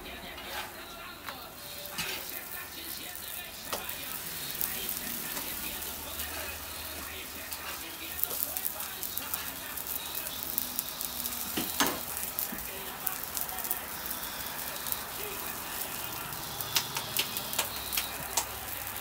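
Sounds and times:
food sizzling on a griddle: 0.0 - 19.0
sharp clicks: 16.0 - 19.0.

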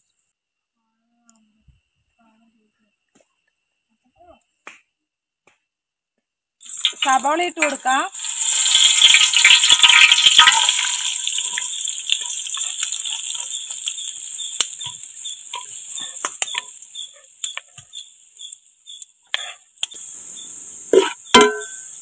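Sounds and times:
onions sizzling in hot oil: 6.6 - 22.0.

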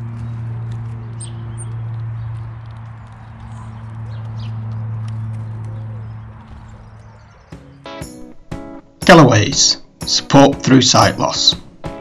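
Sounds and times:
high bird chirps: 1.1 - 1.8.

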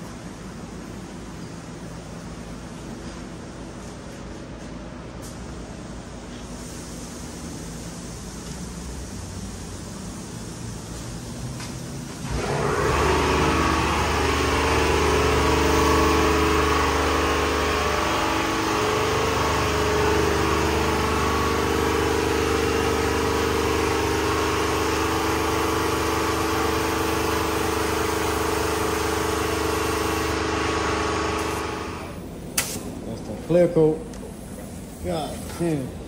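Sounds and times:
air compressor motor hum: 0.0 - 36.0
hiss of air: 5.2 - 12.3.

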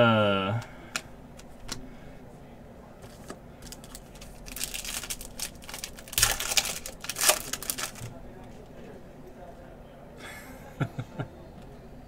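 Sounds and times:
foil pack crinkling and tearing: 3.6 - 8.1.

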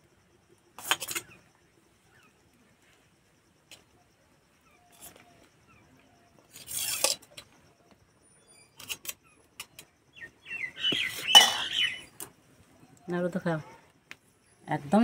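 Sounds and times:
spoon scraping steel plate: 0.8 - 1.4, 6.5 - 7.4, 11.2 - 11.8.

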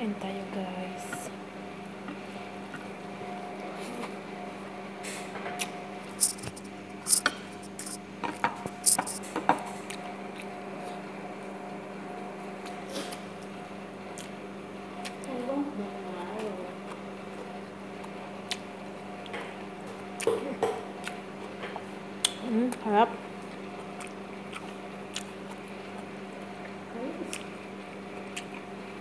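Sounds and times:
steady low hum: 0.0 - 29.0
fingers working through food: 5.6 - 8.0, 8.7 - 10.6, 23.5 - 26.2.

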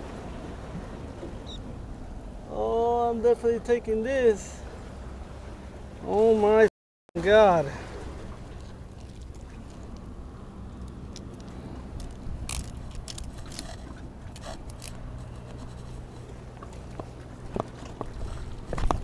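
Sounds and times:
steady low rumble: 7.9 - 19.0
soft handling scrapes and clicks: 10.8 - 19.0.

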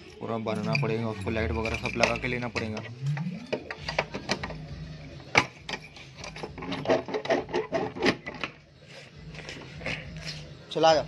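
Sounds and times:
keys jingling: 0.0 - 7.0
bolt rattling and scraping: 0.6 - 4.6, 5.3 - 8.6.

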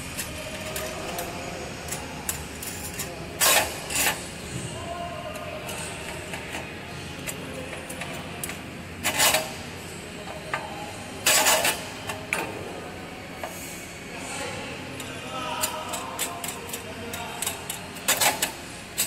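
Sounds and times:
machine background hum: 0.0 - 19.0
metal scraping: 2.6 - 4.7, 9.0 - 9.7, 11.2 - 12.1.

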